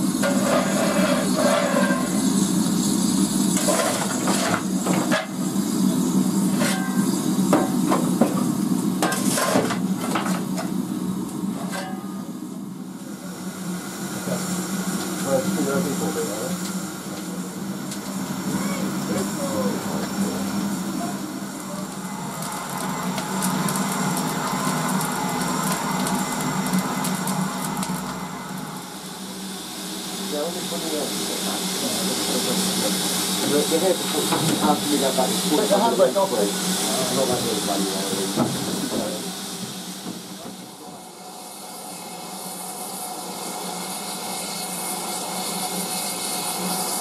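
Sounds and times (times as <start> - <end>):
coal fire crackling: 0.0 - 12.1, 14.2 - 41.0
steam locomotive hissing: 0.0 - 47.0
coal shovel clanking on metal: 0.2 - 2.1, 3.6 - 5.4, 6.5 - 7.0, 9.0 - 10.4, 11.6 - 12.1.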